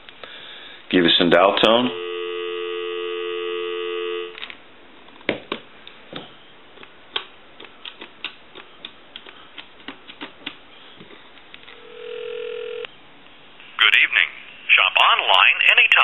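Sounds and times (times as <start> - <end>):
telephone dial tone: 1.9 - 4.4, 11.8 - 12.9.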